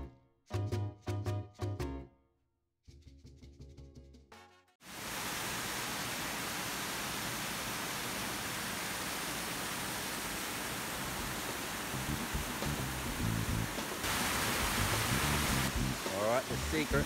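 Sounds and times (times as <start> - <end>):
waterfall rushing over rocks: 4.9 - 17.0.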